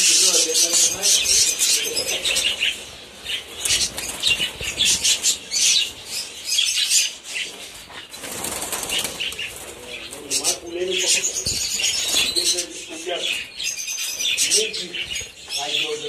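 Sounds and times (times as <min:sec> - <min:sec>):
birds flapping wings: 0:00.0 - 0:06.3, 0:07.6 - 0:12.7
high bird chirping: 0:00.0 - 0:16.0.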